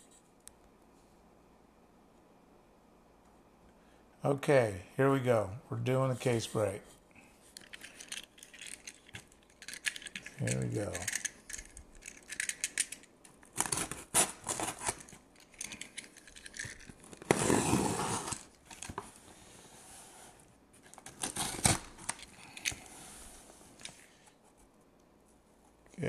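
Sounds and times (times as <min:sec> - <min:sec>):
packing tape cut and torn: 0:13.4 - 0:15.8, 0:16.4 - 0:19.0, 0:20.9 - 0:22.9.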